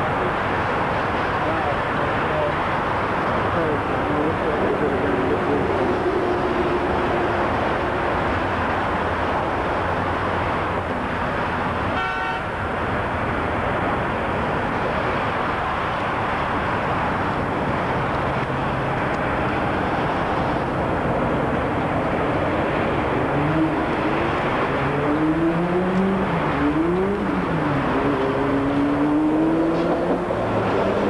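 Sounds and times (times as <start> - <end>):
electric train approaching: 5.6 - 8.2.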